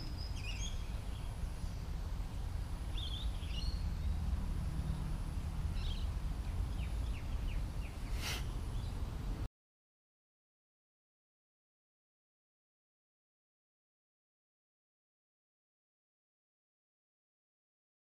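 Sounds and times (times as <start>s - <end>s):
birds chirping: 0.0s - 9.2s.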